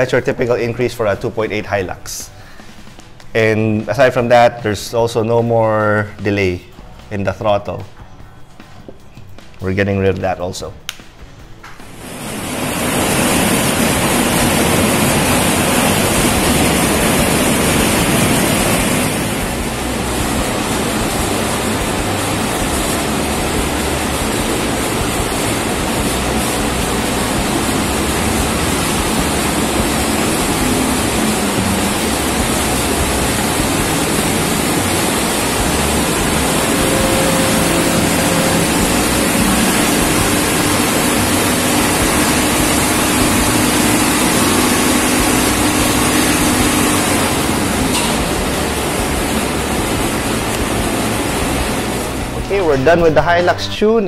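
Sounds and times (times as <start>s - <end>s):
large cooling fan rushing air: 0.0s - 54.0s
diesel engine running: 11.9s - 53.1s.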